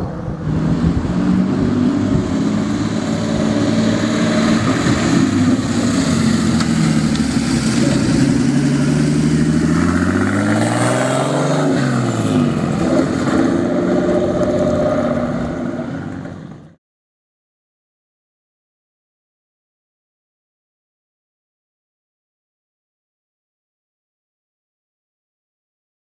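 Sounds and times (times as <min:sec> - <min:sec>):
car engine passing by: 0:00.0 - 0:16.7.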